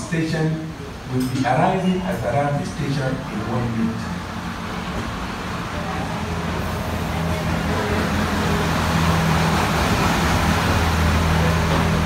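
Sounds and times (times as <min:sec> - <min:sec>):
steam locomotive rumbling: 0:03.1 - 0:12.0.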